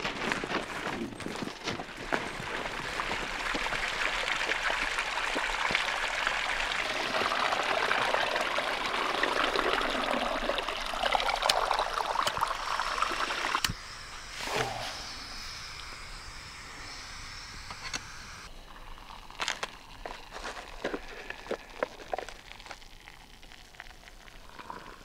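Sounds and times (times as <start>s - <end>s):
spring water trickling: 1.8s - 13.8s, 18.6s - 25.0s.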